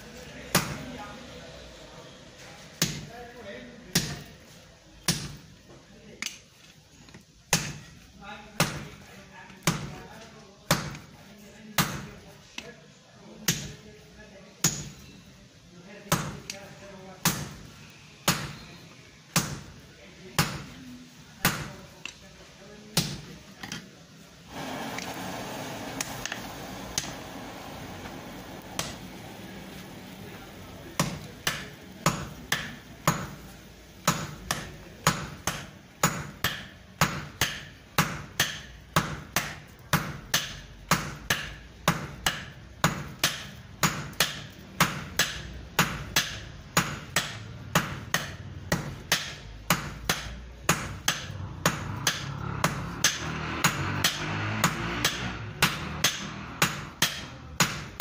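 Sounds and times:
hammer striking iron on anvil: 14.6s - 15.0s, 34.0s - 58.0s.

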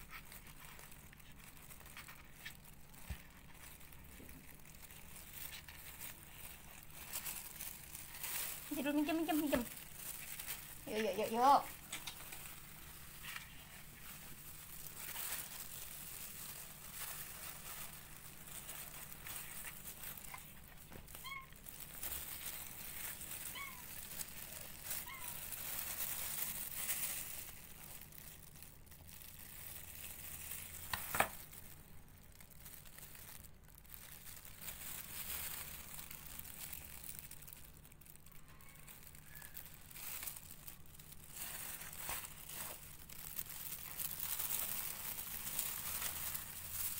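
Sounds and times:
tissue paper and glove rustling: 0.0s - 46.9s.

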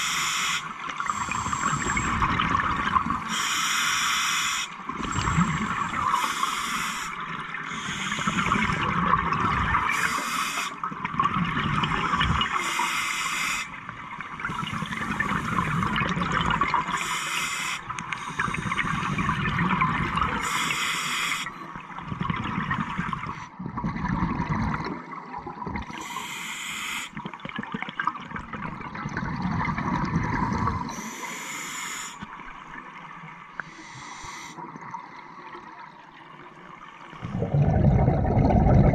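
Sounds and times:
regulator inhale hiss: 0.0s - 2.2s, 3.2s - 8.7s, 9.9s - 10.8s, 12.4s - 13.8s, 17.0s - 19.3s, 20.4s - 21.6s, 26.0s - 27.2s, 30.9s - 32.3s, 33.6s - 34.6s
exhaled air bubbling: 0.0s - 20.7s, 21.5s - 26.2s, 27.1s - 31.2s, 32.2s - 38.9s.

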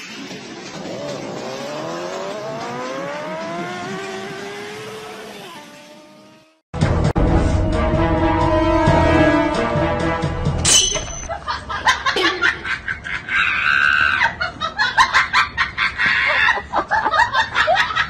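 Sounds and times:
music: 0.0s - 4.2s, 6.8s - 11.1s.

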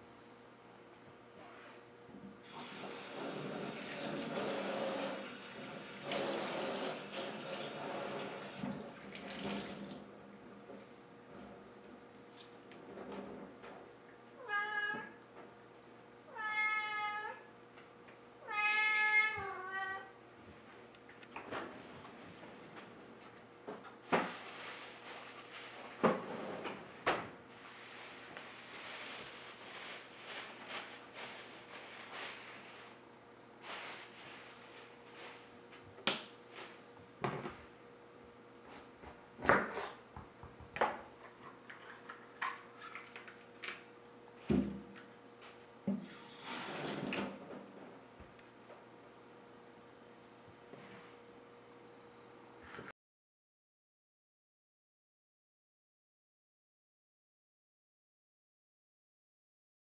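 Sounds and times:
cat meowing: 14.4s - 15.2s, 16.3s - 17.5s, 18.4s - 20.2s.

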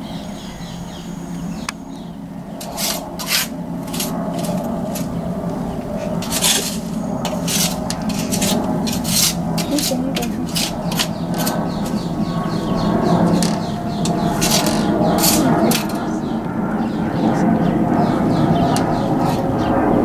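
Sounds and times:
steady low hum: 0.0s - 20.0s
rasping scrapes: 2.6s - 5.1s, 6.0s - 12.0s, 13.3s - 15.5s.

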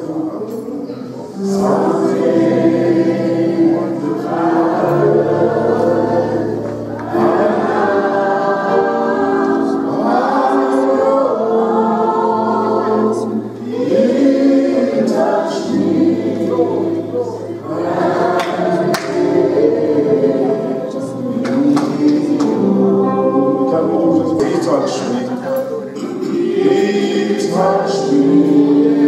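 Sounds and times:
gospel choir singing: 0.0s - 29.0s
held low accompaniment notes: 15.3s - 29.0s.

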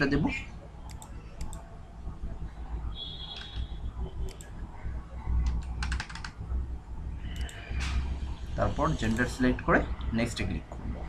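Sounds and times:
low steady rumble: 0.0s - 11.0s
computer mouse clicks: 0.9s - 1.6s, 4.3s - 4.5s, 5.4s - 6.4s, 7.3s - 7.6s
keyboard key presses: 5.4s - 6.4s.

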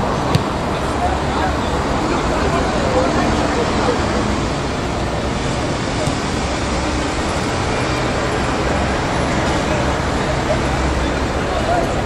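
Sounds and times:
distant road traffic: 0.0s - 12.0s.

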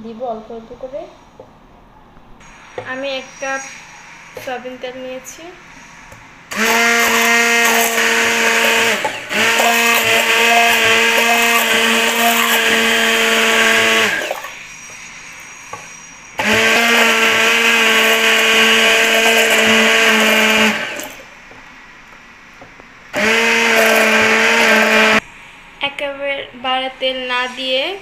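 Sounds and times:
stick blender whining: 6.1s - 21.3s, 23.1s - 25.2s.

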